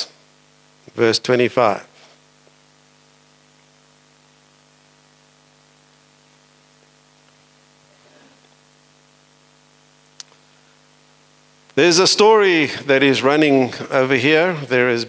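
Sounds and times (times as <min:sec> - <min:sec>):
electrical hum with hiss: 0:00.0 - 0:15.0.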